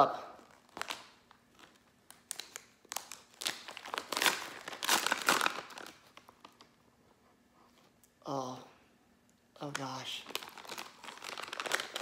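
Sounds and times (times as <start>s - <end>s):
plastic pouch crinkling and tearing: 0.4s - 6.8s, 9.7s - 12.0s.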